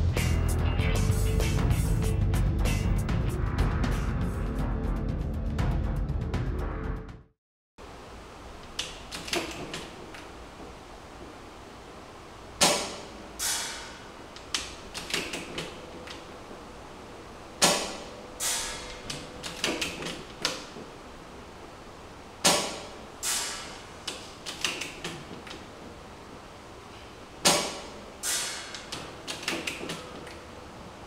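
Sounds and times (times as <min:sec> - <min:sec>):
airsoft rifle shot: 0:22.4 - 0:22.9.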